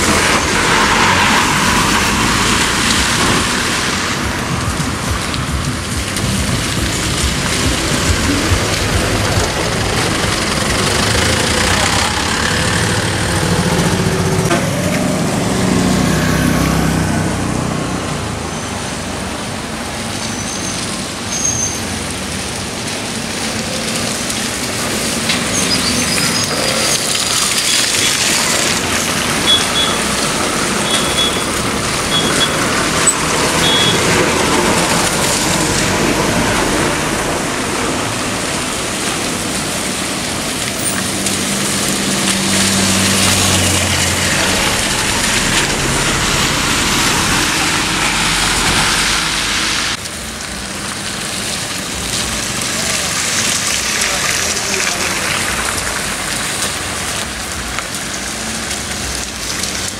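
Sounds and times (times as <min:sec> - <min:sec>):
jeep engine running close: 0:00.0 - 0:18.4, 0:26.5 - 0:50.1
cars and buses passing slowly: 0:00.0 - 0:59.9.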